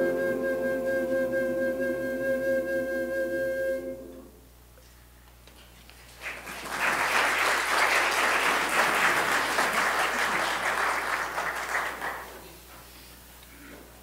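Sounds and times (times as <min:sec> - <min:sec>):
congregation applauding: 0:06.1 - 0:12.6.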